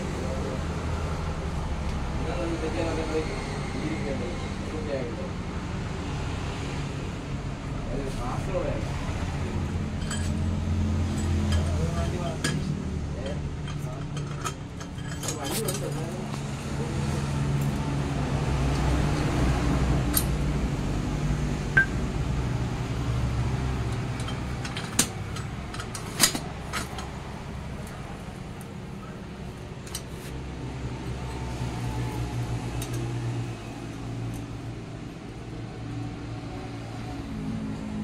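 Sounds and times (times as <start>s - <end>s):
metal parts clinking: 10.0s - 10.4s, 13.2s - 16.2s, 23.9s - 27.1s.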